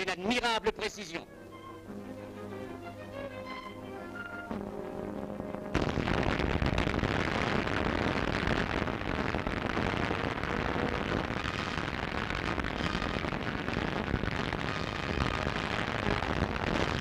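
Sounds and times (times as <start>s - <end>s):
explosions: 5.7s - 17.0s.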